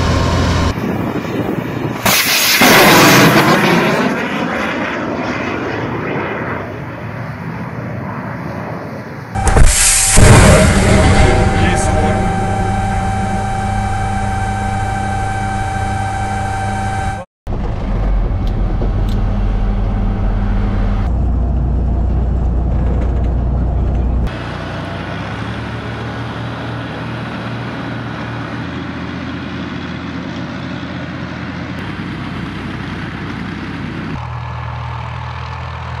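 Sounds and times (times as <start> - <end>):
heavy vehicle engine rumbling: 0.0 - 2.1, 9.4 - 36.0.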